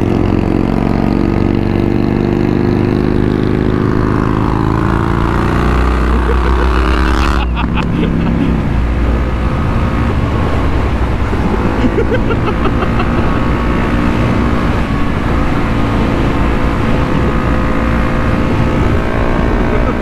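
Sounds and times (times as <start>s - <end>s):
motorcycle engine drone: 0.0s - 20.0s
wind noise on microphone: 7.6s - 20.0s.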